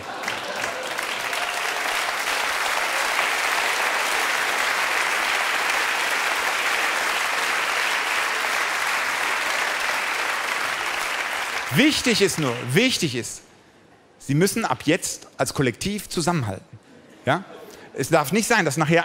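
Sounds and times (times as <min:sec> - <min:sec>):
audience applauding: 0:00.0 - 0:13.2.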